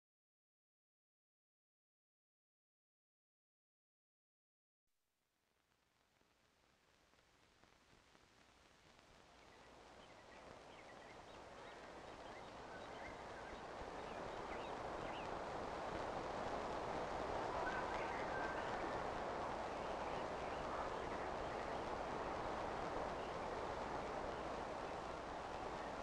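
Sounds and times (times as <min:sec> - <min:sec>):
steady noisy hiss: 0:05.5 - 0:26.0.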